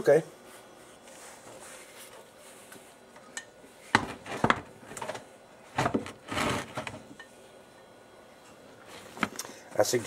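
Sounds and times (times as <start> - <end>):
metal scraping: 5.8 - 7.0.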